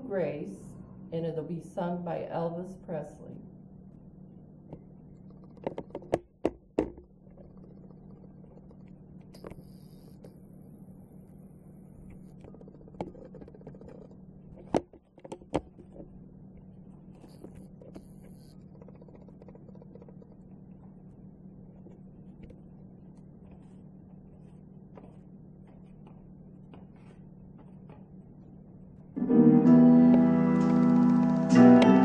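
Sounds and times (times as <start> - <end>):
steady low hum: 0.0 - 32.0
sharp knocks and clicks: 4.7 - 9.5, 12.4 - 16.1, 17.5 - 21.0.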